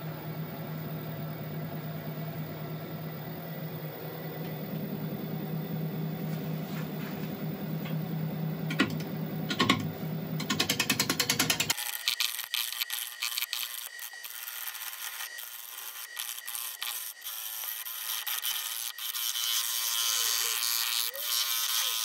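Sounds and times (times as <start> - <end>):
wood lathe motor hum: 0.0 - 22.0
gouge ticking on spinning wood: 8.7 - 11.8.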